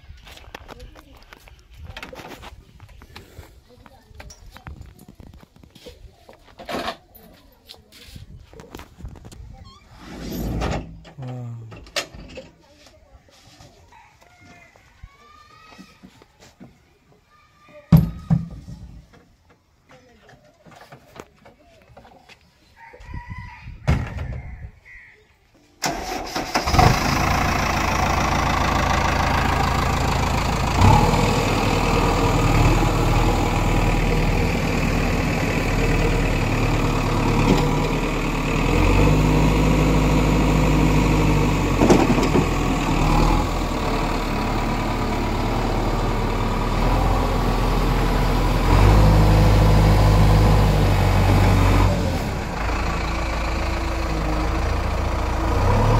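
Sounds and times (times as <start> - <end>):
diesel engine running: 25.8 - 55.9.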